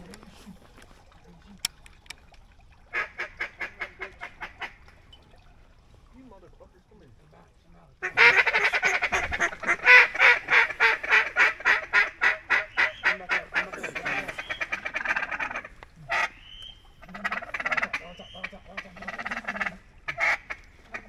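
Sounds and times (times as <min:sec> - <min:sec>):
duck call quacking: 0:02.9 - 0:04.8, 0:08.0 - 0:21.0.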